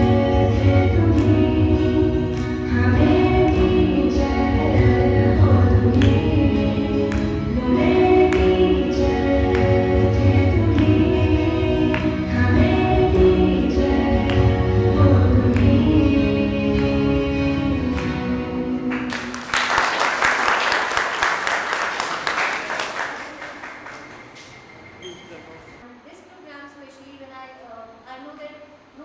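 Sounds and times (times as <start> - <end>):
song with singing: 0.0 - 20.0
applause: 18.9 - 24.6.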